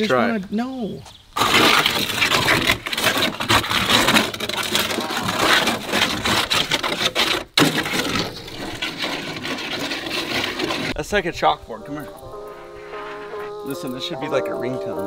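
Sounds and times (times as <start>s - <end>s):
shovel scraping wet clay on metal: 1.4s - 11.0s.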